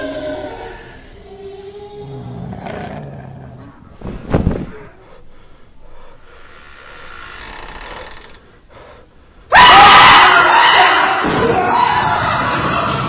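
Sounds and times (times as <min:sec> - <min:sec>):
loud scream: 0:09.5 - 0:13.0.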